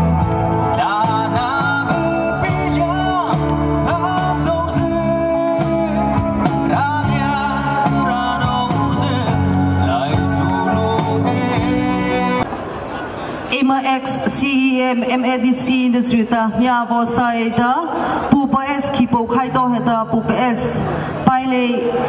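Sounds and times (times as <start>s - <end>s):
man singing into microphone: 0.0s - 12.4s
amplified band with electric guitar: 0.0s - 13.5s.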